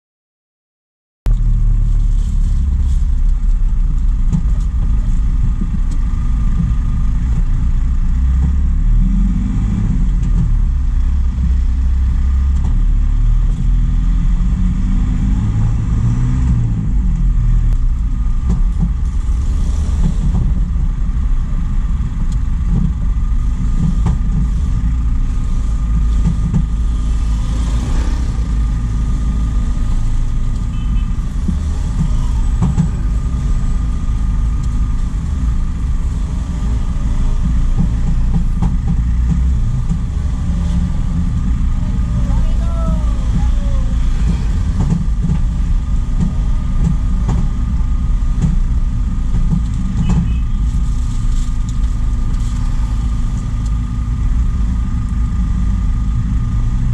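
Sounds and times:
road noise: 0:01.3 - 0:56.9
truck engine drone: 0:01.3 - 0:56.9.

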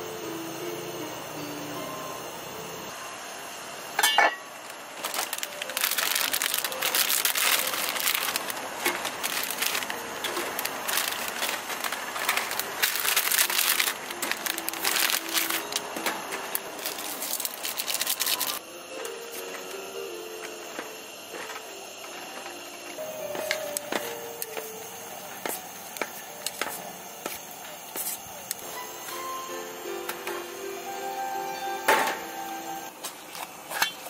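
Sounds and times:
plastic packet crinkling: 0:04.6 - 0:18.6.

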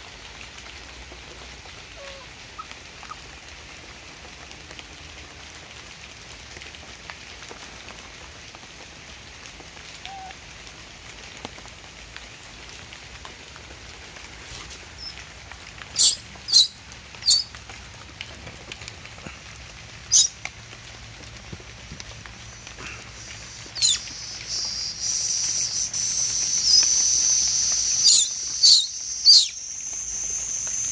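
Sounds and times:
background hiss: 0:00.0 - 0:30.9
baby monkey squealing: 0:15.0 - 0:15.2, 0:16.0 - 0:17.5, 0:20.1 - 0:20.3, 0:23.3 - 0:30.9.

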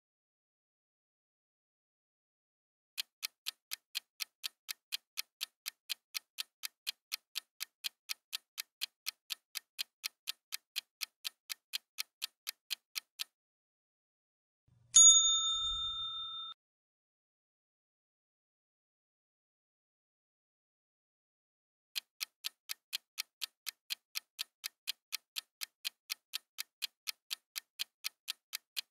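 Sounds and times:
bright bell ding: 0:15.0 - 0:16.6.

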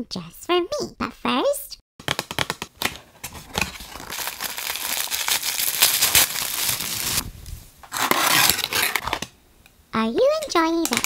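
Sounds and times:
paper packaging rustling: 0:02.1 - 0:07.2, 0:07.8 - 0:09.3.

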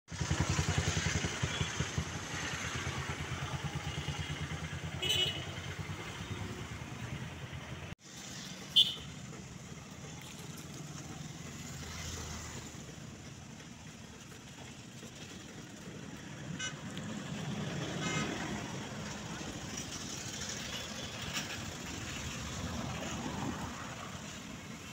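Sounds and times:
motorcycle engine idling: 0:00.1 - 0:17.8
traffic noise: 0:00.1 - 0:24.9
horn toots: 0:04.0 - 0:06.7, 0:08.6 - 0:09.2, 0:17.8 - 0:18.7
loud horn beep: 0:05.0 - 0:06.6, 0:08.7 - 0:09.1, 0:18.0 - 0:18.5.

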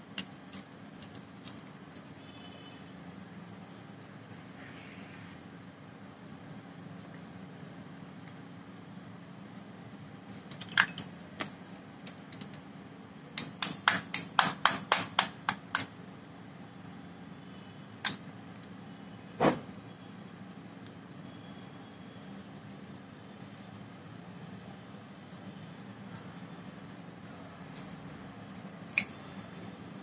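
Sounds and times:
pliers tapping on metal: 0:00.1 - 0:02.1, 0:27.7 - 0:29.2.

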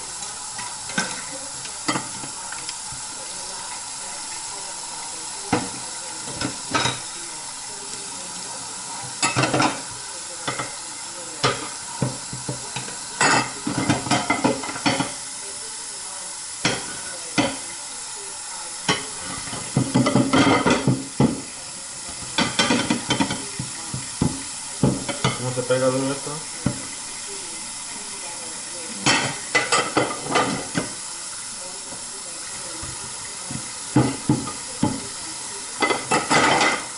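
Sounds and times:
faucet running into sink: 0:00.0 - 0:36.9
dishes clattering in sink: 0:00.5 - 0:02.6, 0:05.4 - 0:07.2, 0:09.0 - 0:10.8, 0:11.4 - 0:15.2, 0:16.6 - 0:17.7, 0:18.8 - 0:27.0, 0:28.9 - 0:31.0, 0:31.9 - 0:36.9.

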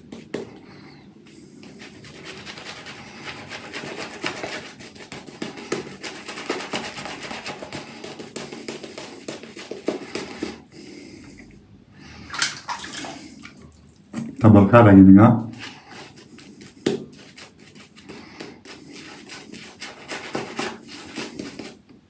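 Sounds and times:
shaving brush scratching on stubble: 0:01.3 - 0:10.6, 0:15.6 - 0:21.8.

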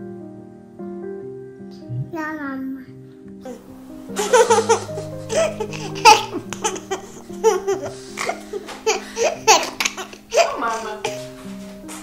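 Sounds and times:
soft background music: 0:00.0 - 0:12.0
toddler giggling: 0:03.5 - 0:11.3.

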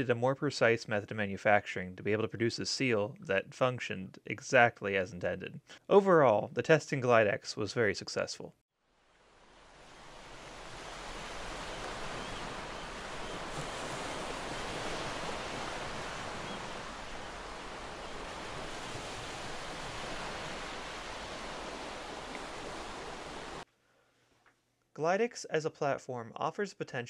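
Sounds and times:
ocean waves washing: 0:09.0 - 0:23.6.

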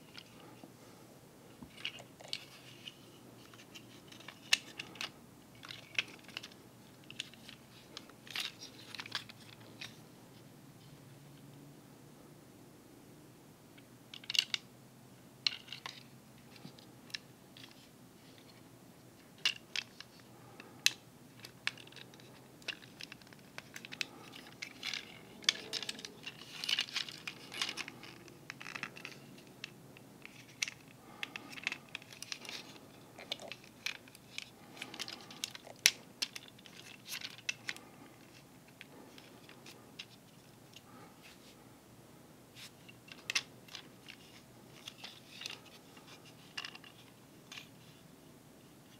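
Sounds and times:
plastic toy joints clicking: 0:20.8 - 0:40.2.

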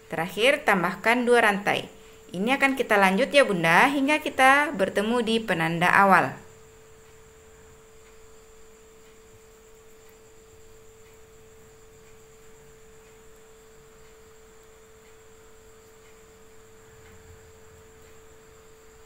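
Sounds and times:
faint steady hum: 0:00.0 - 0:19.0
low background hiss: 0:00.0 - 0:19.0
faint ticks: 0:06.4 - 0:19.0.

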